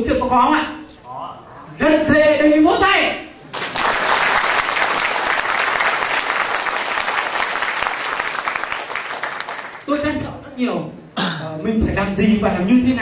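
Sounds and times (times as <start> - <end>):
audience applauding: 3.5 - 9.9.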